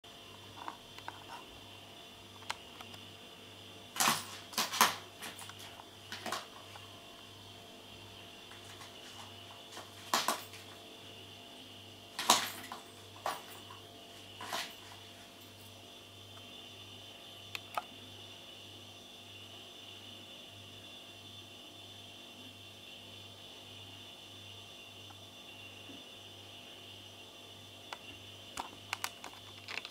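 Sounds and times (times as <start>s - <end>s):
plastic toy ball clattering: 28.9s - 29.9s.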